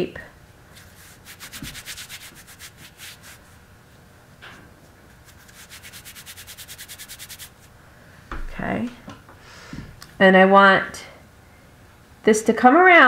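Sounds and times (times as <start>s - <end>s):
hands rubbing wool: 0.7s - 3.6s, 5.1s - 7.8s.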